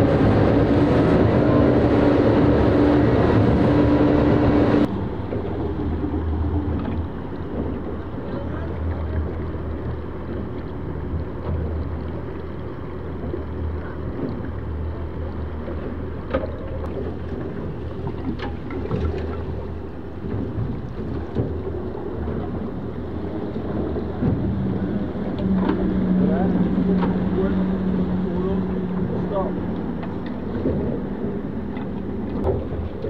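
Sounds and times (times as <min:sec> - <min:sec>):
wind on microphone: 0:00.0 - 0:15.3
rush of water and spray: 0:00.0 - 0:33.0
steady low rumble: 0:00.0 - 0:33.0.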